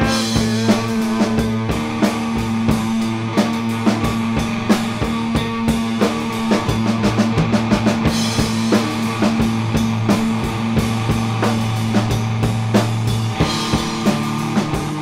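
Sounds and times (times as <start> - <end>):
rock music: 0.0 - 15.0.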